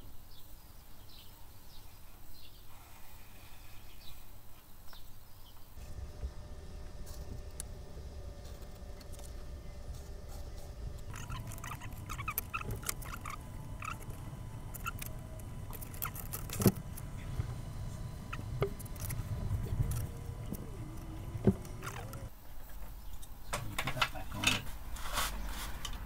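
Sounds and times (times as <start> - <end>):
pencil scratching on wood: 5.8 - 22.2
steady low hum: 5.8 - 22.4.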